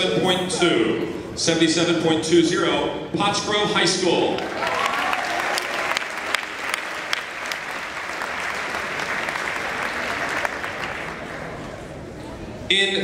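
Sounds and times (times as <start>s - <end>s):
crowd applauding: 4.4s - 11.8s.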